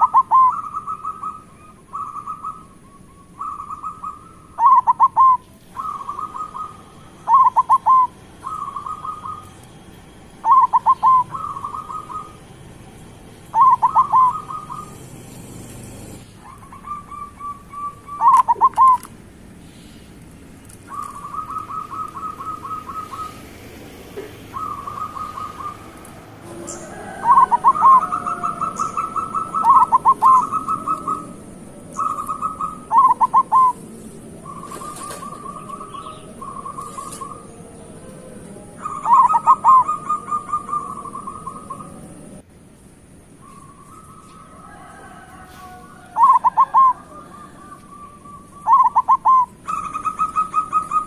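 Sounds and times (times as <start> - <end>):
doves cooing: 0.0 - 20.0, 20.6 - 42.4, 43.4 - 51.0.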